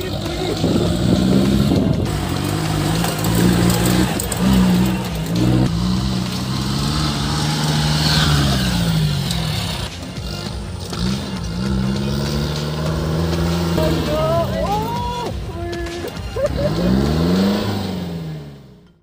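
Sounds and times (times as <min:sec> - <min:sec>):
jeep engine revving: 0:00.0 - 0:19.0.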